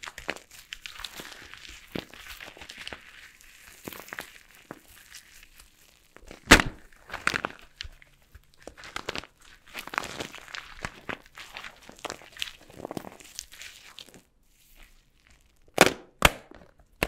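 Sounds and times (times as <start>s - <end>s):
soap crunching as it is cut: 0.0s - 17.0s.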